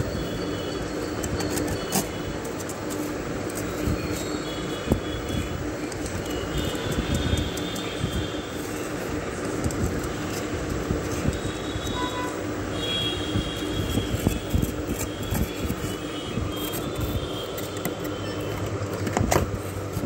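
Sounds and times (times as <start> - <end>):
steady low hum: 0.0 - 20.0
metal spoon scraping ice: 13.5 - 18.7.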